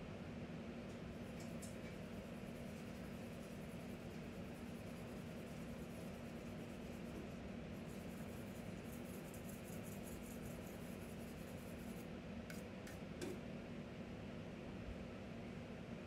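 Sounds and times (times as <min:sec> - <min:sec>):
light scratching: 0:01.4 - 0:12.6.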